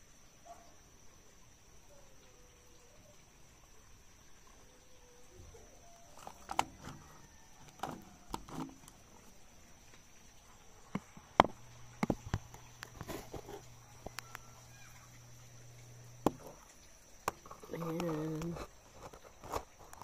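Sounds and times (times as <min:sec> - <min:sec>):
leaves rustling: 0:04.4 - 0:20.0
twigs snapping: 0:06.1 - 0:09.3.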